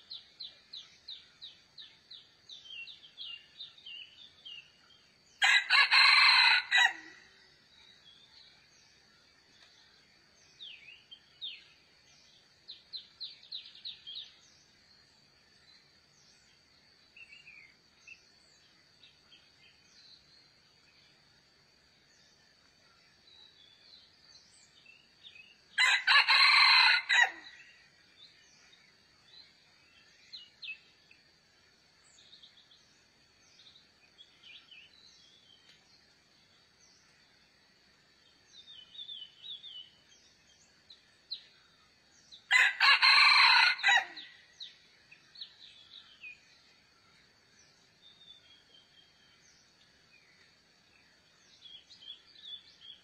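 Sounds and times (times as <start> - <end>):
small birds chirping: 0.0 - 6.1, 27.3 - 53.0
rooster crowing: 5.4 - 7.2, 25.8 - 27.6, 42.5 - 44.3.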